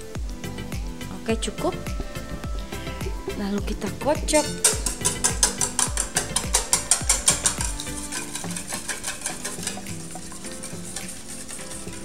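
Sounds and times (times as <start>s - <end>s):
whisk beating eggs in metal bowl: 4.3s - 12.0s.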